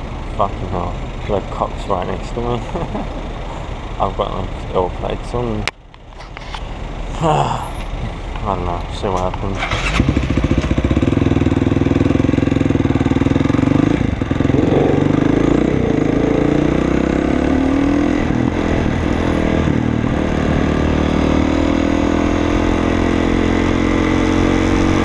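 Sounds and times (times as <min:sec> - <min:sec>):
motorcycle engine accelerating: 0:09.5 - 0:25.0.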